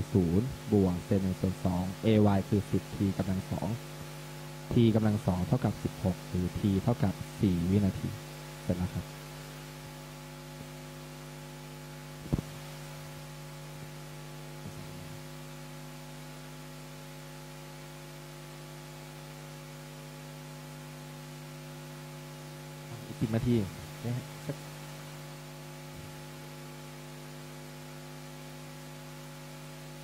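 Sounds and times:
low electrical hum: 0.0s - 30.0s
short thump: 12.2s - 12.6s.

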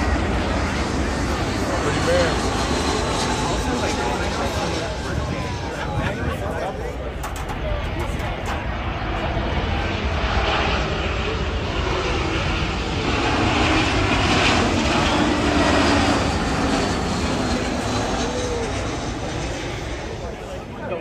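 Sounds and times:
jet airliner engine roar: 0.0s - 21.0s.

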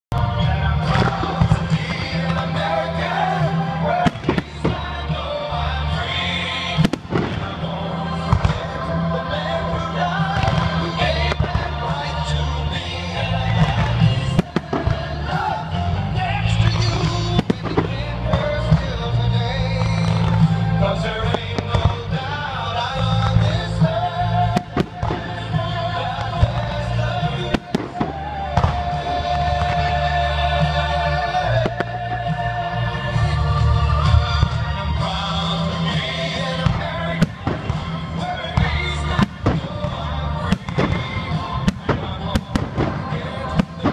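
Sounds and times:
music: 0.0s - 43.9s
fireworks banging: 0.1s - 43.9s.

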